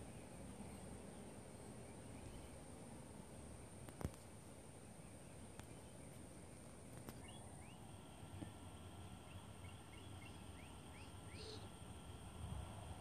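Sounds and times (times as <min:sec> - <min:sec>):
distant bird chirps: 0:00.0 - 0:02.8, 0:04.0 - 0:11.9
wind rumble on microphone: 0:12.2 - 0:13.0.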